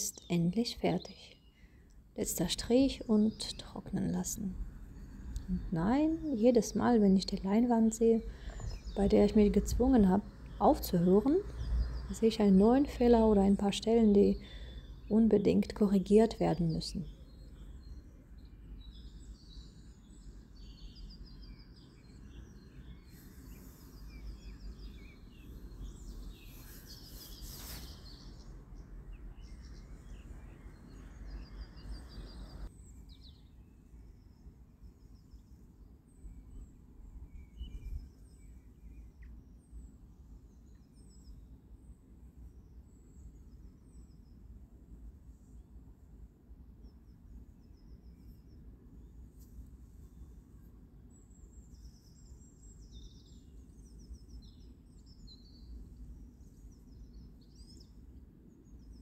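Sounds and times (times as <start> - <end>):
birds chirping: 0.0 - 33.5
low steady hum: 0.0 - 59.0.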